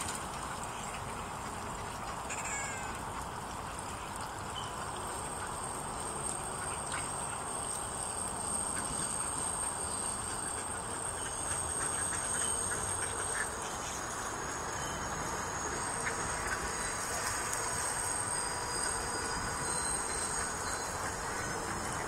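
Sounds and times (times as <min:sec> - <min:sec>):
steady background noise: 0:00.0 - 0:22.0
thin high whine: 0:04.5 - 0:22.0
geese calling: 0:08.5 - 0:22.0.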